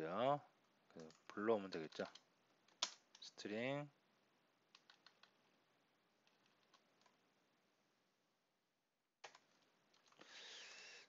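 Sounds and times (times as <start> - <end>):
faint keyboard typing: 0.6 - 3.3, 4.7 - 5.6, 6.2 - 7.2, 9.2 - 10.4.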